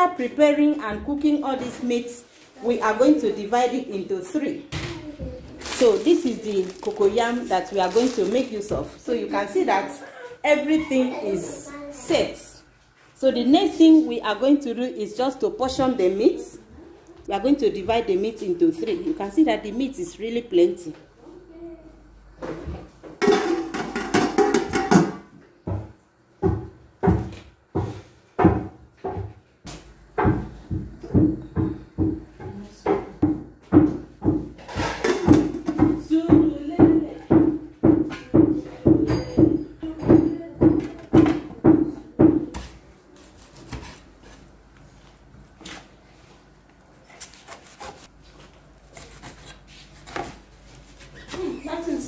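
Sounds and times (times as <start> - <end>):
cooking pots and lids clattering: 23.2 - 25.3.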